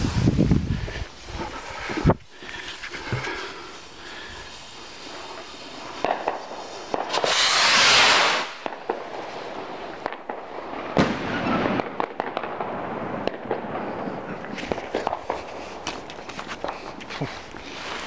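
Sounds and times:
firework rocket whoosh: 0.0 - 1.0, 4.4 - 15.9
firework cracks: 3.9 - 18.0
pops and crackles: 5.4 - 8.0, 14.4 - 18.0
firework bang: 6.0 - 13.8.

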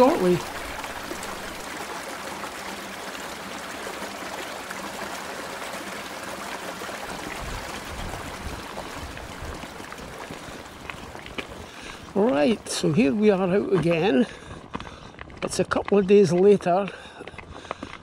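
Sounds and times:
river water rushing: 0.0 - 13.8
wind rumble on microphone: 7.3 - 12.2.

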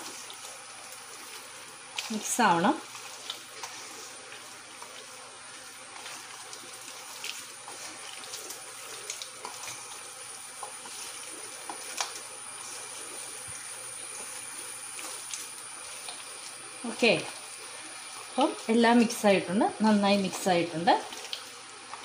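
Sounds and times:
hand squishing wet chicken: 0.0 - 16.6.

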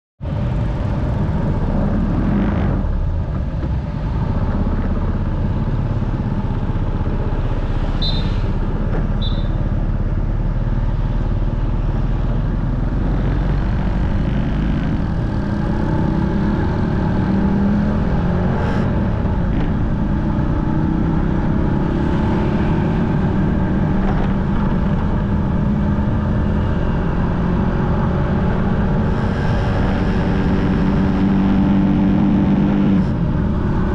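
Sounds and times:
short high beeps: 8.0 - 8.4, 9.2 - 9.6
wind rumble on microphone: 11.3 - 33.9.

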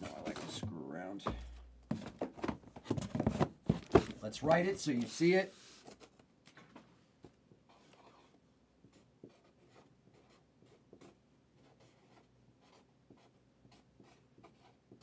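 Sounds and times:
marker writing on cardboard: 7.7 - 15.0.

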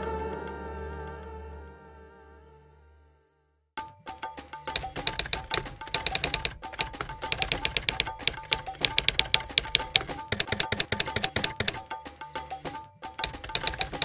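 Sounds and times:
background music: 4.0 - 14.0
typewriter key clicks: 4.7 - 11.9, 13.2 - 14.0.

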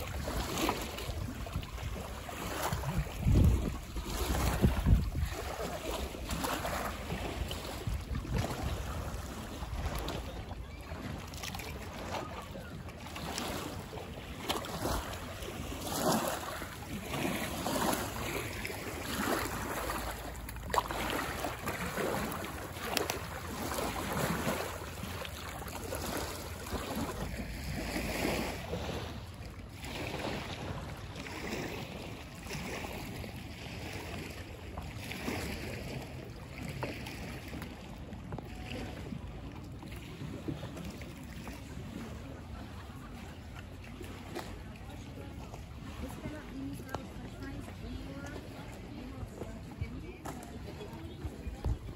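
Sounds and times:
wind on microphone: 0.0 - 11.4, 48.0 - 51.9
small waves lapping on shore: 0.0 - 51.9.

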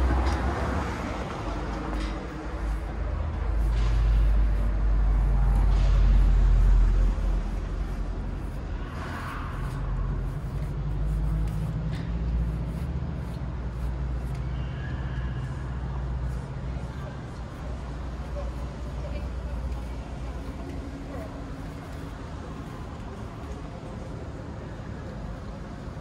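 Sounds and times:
low mechanical rumble: 0.0 - 26.0.

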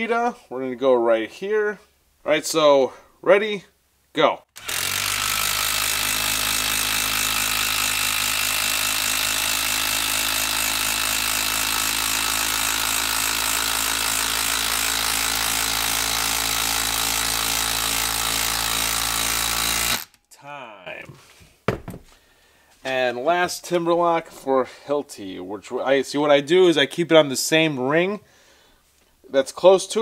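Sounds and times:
impact driver hammering screw into wood: 4.6 - 20.2, 21.7 - 22.1.

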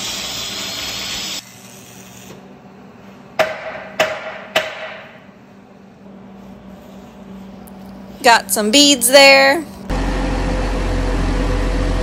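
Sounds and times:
hammer strikes on steel: 3.4 - 5.2.

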